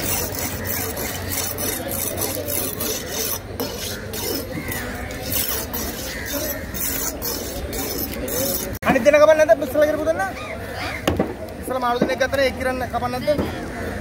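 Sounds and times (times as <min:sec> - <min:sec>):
knife rasping on sharpening stone: 0:00.0 - 0:08.8.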